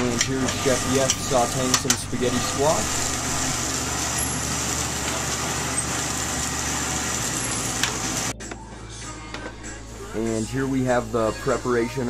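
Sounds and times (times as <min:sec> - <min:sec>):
commercial kitchen rushing noise: 0:00.0 - 0:08.3.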